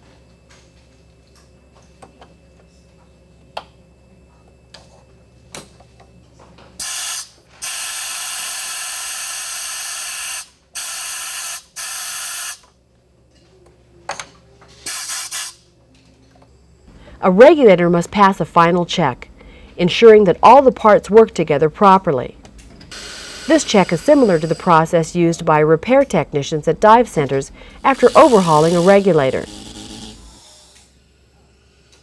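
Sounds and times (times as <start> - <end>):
regulator purge air hissing blasts: 22.9 - 25.0, 27.4 - 30.9.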